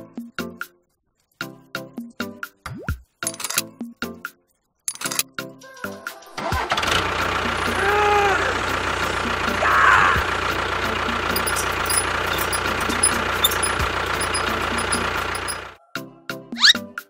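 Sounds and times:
tractor engine running: 6.5 - 15.8.

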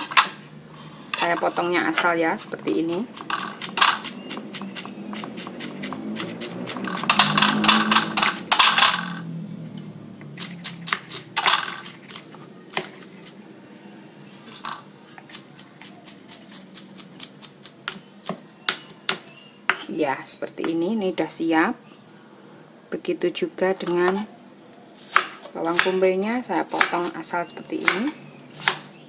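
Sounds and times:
knife chopping on wooden board: 3.1 - 8.9, 27.7 - 28.9.

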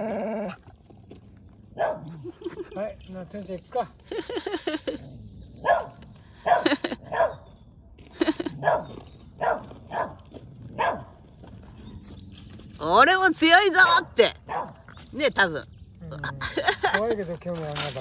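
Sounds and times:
dog barking: 1.8 - 2.2, 5.6 - 7.5, 8.6 - 11.2, 14.5 - 14.8.

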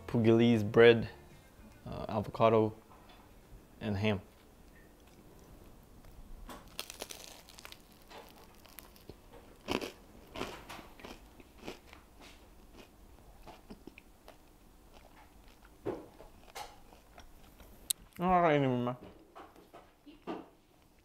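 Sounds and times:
person chewing crunchy bread: 5.0 - 18.0.

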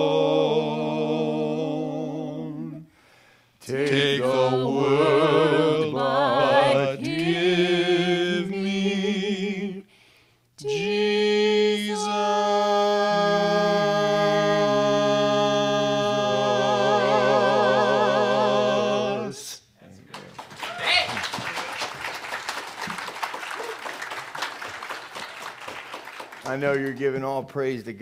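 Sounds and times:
voices singing a hymn in harmony: 0.0 - 10.0, 10.6 - 19.6.

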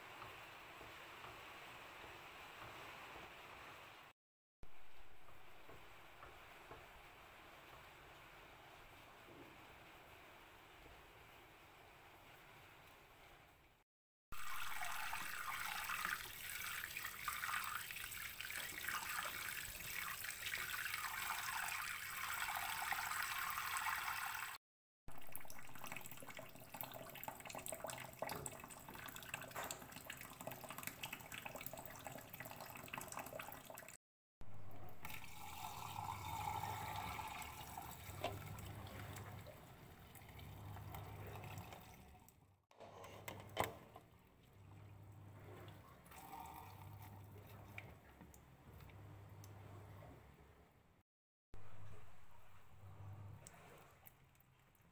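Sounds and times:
tap water splashing into pot: 14.4 - 34.0.

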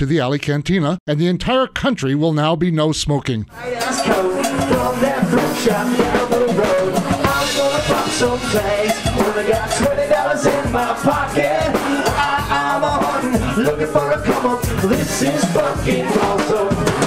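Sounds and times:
music with drum kit beat: 3.5 - 17.0.

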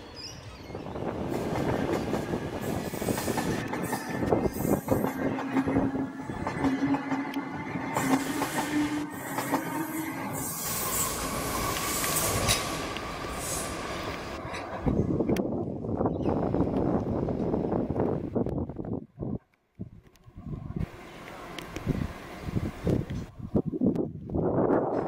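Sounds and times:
train wheels squealing: 0.0 - 14.1.

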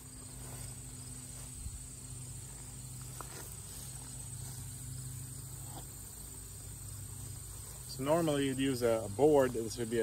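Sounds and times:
insect trill: 0.0 - 10.0.

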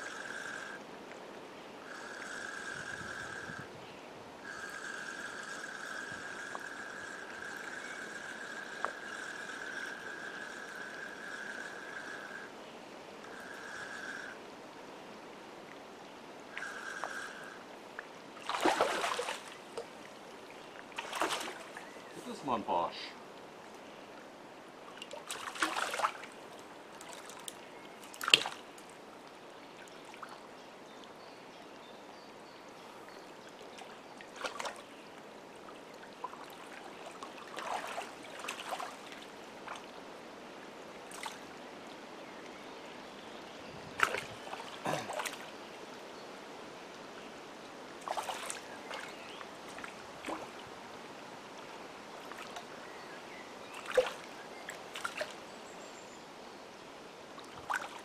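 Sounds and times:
small splashes: 18.4 - 19.9, 20.9 - 22.4, 25.0 - 26.4, 27.0 - 28.7, 33.7 - 34.9, 36.0 - 39.9, 41.1 - 41.5, 44.0 - 45.5, 48.0 - 50.6, 53.8 - 55.4, 57.4 - 58.0
lake water lapping and sloshing: 18.4 - 22.4, 24.9 - 29.0, 33.4 - 40.0, 41.0 - 41.6, 44.0 - 45.7, 48.0 - 50.8, 52.1 - 55.4, 57.4 - 58.0.

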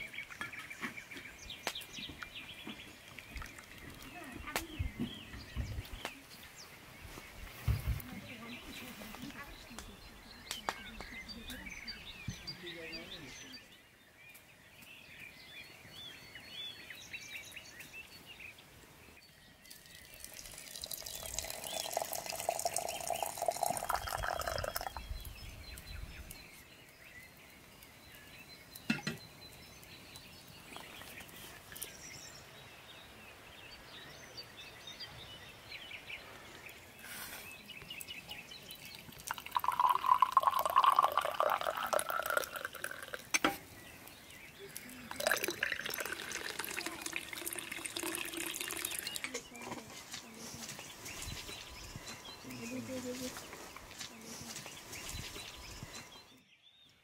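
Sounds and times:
hot liquid pouring into glass: 19.6 - 25.3, 38.6 - 43.6, 45.1 - 49.4.

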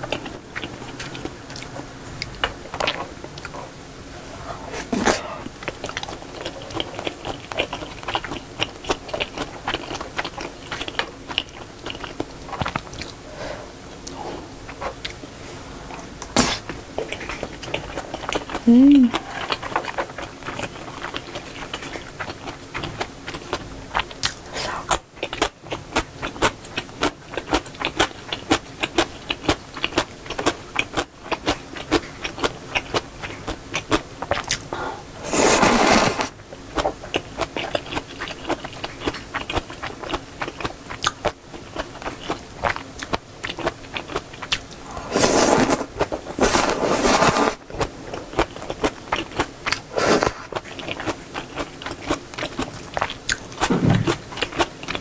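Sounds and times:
slurping noodles: 35.2 - 36.3, 44.9 - 47.6, 49.9 - 50.6.

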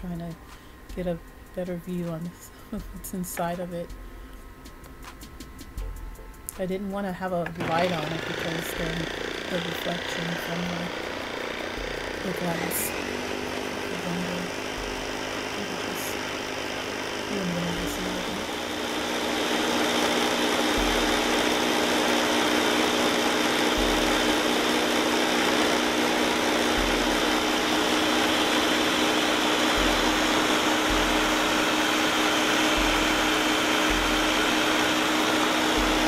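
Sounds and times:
blender motor whirring: 7.6 - 36.0.

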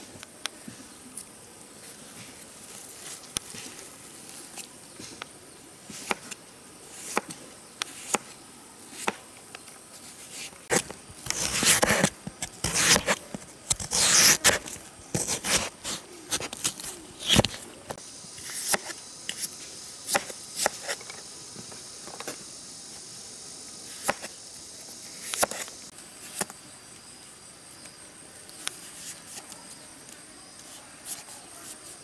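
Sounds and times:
insects humming: 0.0 - 32.0
knife slicing fruit on cutting board: 7.0 - 8.3, 10.7 - 17.5, 18.4 - 19.5.

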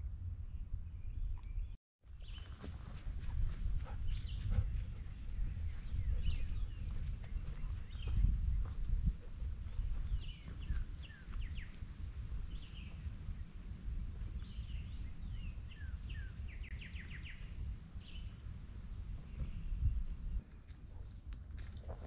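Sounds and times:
steady low rumble: 0.0 - 20.4
birds singing and chirping: 3.3 - 20.4.

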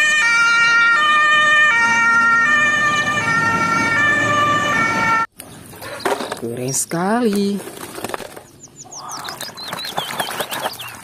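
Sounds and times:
fire engine two-tone siren: 0.0 - 5.3
truck rumble: 0.0 - 6.3.

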